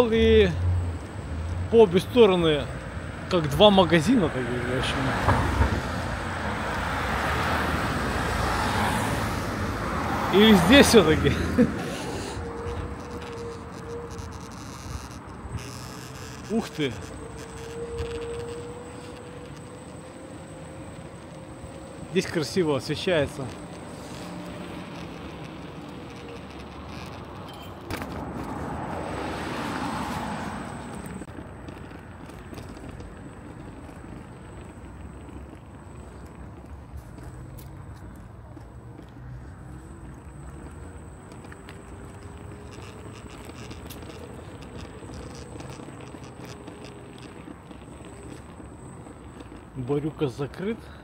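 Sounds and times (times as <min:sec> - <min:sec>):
city street rumble: 0:00.0 - 0:51.0
car driving past: 0:03.8 - 0:26.6, 0:27.9 - 0:31.3
faint footsteps: 0:07.6 - 0:49.8.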